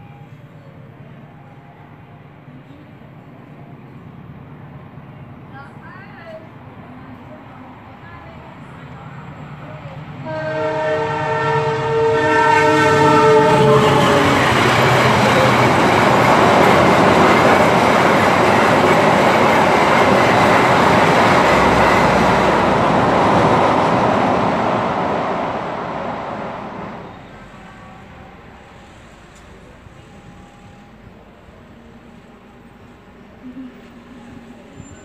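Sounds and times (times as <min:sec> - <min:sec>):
train horn: 0:10.2 - 0:15.8.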